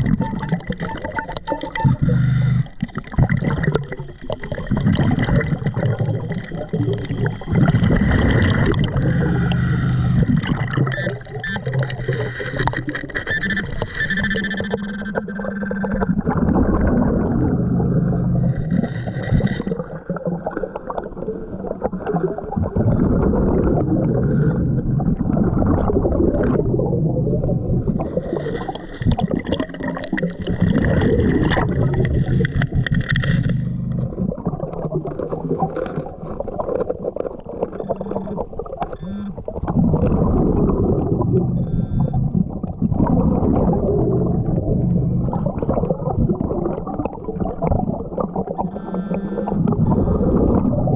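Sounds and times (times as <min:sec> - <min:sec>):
bubbling exhalations underwater: 0:00.0 - 0:14.4, 0:15.2 - 0:50.9
hissing regulator inhalations: 0:08.8 - 0:10.4, 0:48.6 - 0:50.5.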